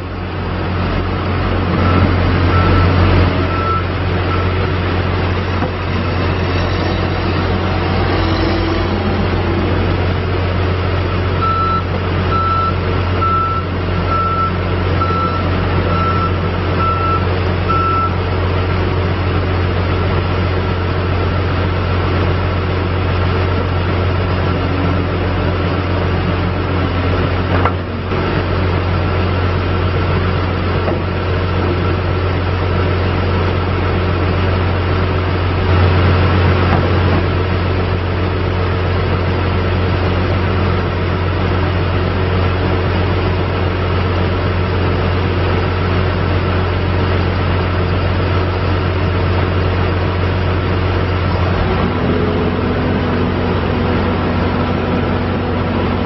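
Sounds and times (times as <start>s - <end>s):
diesel engine running: 0.0s - 56.0s
backup alarm beeping: 1.8s - 4.6s, 11.4s - 18.1s.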